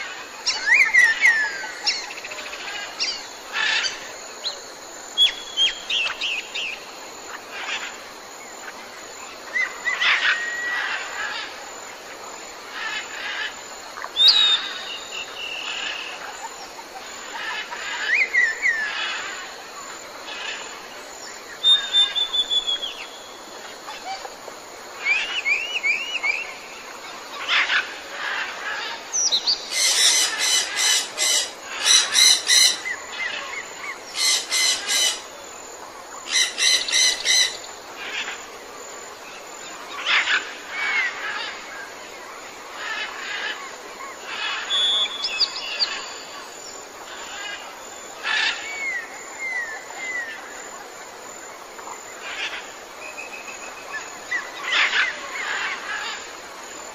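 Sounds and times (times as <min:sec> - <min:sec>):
outdoor background noise: 0:00.0 - 0:56.9
birds chirping and whistling: 0:21.7 - 0:23.1, 0:44.7 - 0:46.1
loud rattling bird calls: 0:27.4 - 0:35.3, 0:36.2 - 0:38.3, 0:44.3 - 0:46.2, 0:48.2 - 0:49.6, 0:54.4 - 0:56.4.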